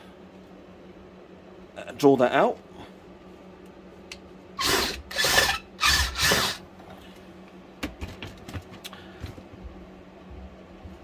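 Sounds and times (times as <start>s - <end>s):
drill bit grinding in hole: 4.6s - 6.6s.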